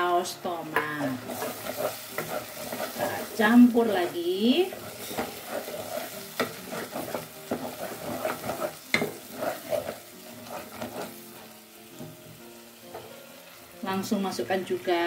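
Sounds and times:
frying sizzle: 0:00.0 - 0:15.0
spatula scraping a pot: 0:01.0 - 0:03.6, 0:04.6 - 0:11.5.

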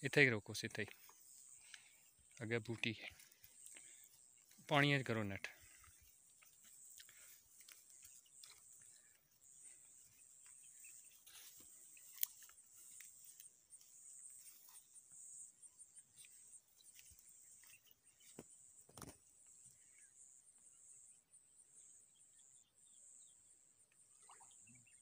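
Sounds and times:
insects chirring: 0:00.8 - 0:20.2.

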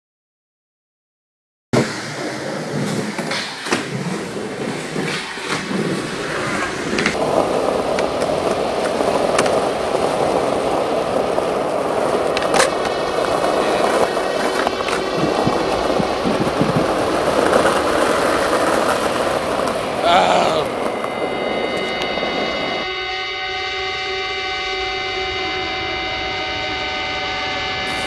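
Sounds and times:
skateboard wheels rolling on asphalt: 0:01.8 - 0:22.9.

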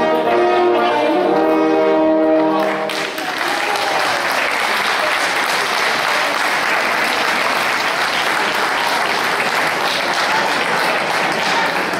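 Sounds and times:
crowd applauding: 0:02.6 - 0:11.9.

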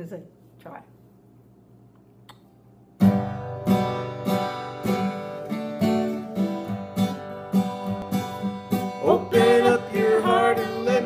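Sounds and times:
acoustic guitar strumming chords: 0:03.0 - 0:11.0.

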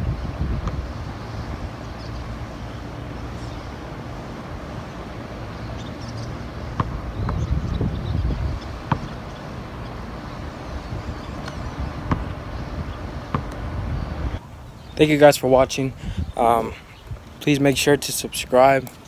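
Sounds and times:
wind buffeting microphone: 0:00.0 - 0:02.4, 0:06.9 - 0:09.3, 0:10.5 - 0:14.4, 0:15.4 - 0:17.4
basketball knocks: 0:08.8 - 0:09.1.

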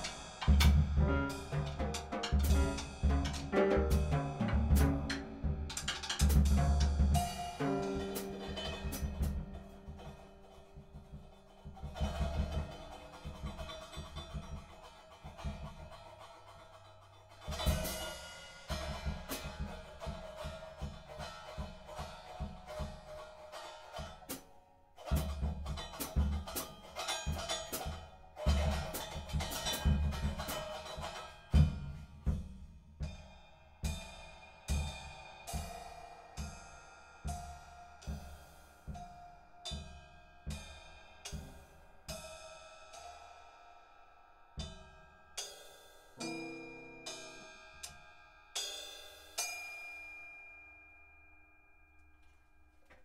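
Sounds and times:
drum and cymbal strikes: 0:00.0 - 0:10.3, 0:17.5 - 0:23.2, 0:25.1 - 0:43.5, 0:44.6 - 0:50.2
jazz piano: 0:00.0 - 0:13.6.

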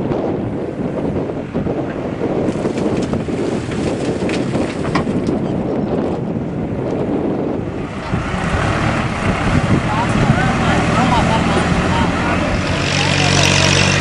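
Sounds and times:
wind buffeting microphone: 0:00.0 - 0:14.0
backhoe loader engine running: 0:01.4 - 0:14.0
knocks and rattles: 0:02.5 - 0:05.6.

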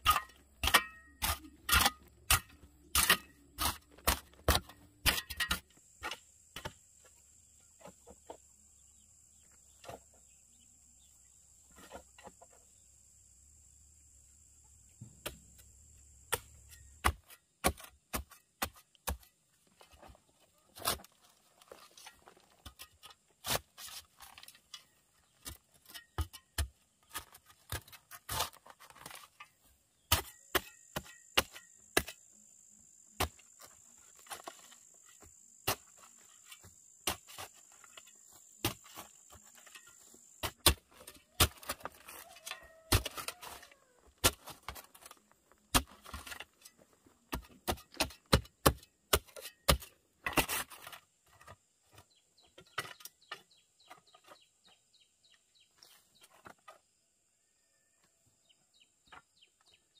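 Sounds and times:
shovel scraping rocky soil: 0:00.0 - 0:06.8, 0:16.3 - 0:32.3, 0:33.2 - 0:54.5.

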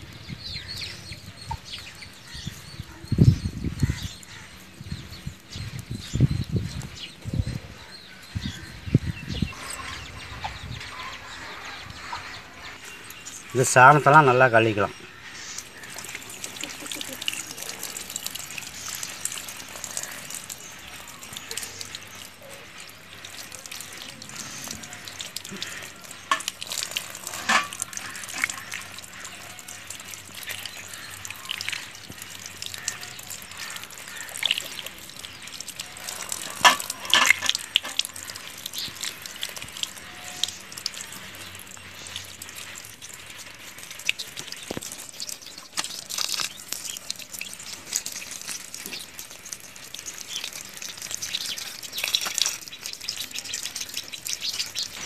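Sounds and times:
water pouring in thin stream: 0:00.0 - 0:55.0
water splashing on ground: 0:11.9 - 0:55.0.

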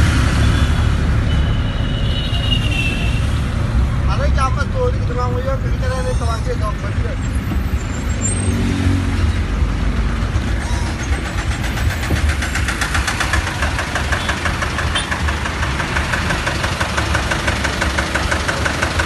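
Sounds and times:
traffic engine rumble: 0:00.0 - 0:19.0
fast engine clatter: 0:09.6 - 0:19.0.

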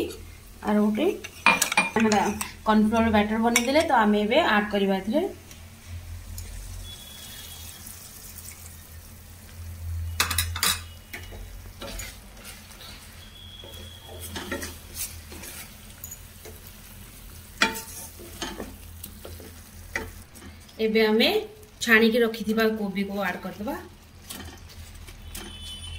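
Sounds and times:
sauce sizzling in a wok: 0:00.0 - 0:25.9
spatula scraping a pan: 0:10.4 - 0:16.6, 0:17.6 - 0:20.6.

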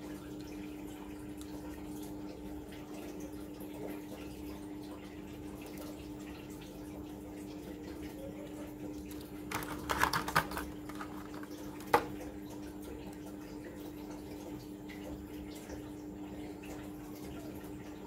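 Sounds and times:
plastic packaging crinkling: 0:09.5 - 0:12.1.

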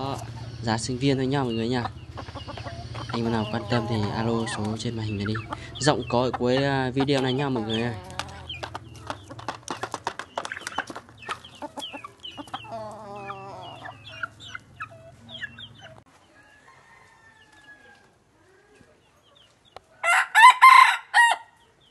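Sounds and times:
junglefowl clucking and chirping: 0:00.0 - 0:21.9
rooster crowing: 0:16.4 - 0:18.2, 0:20.0 - 0:21.6.

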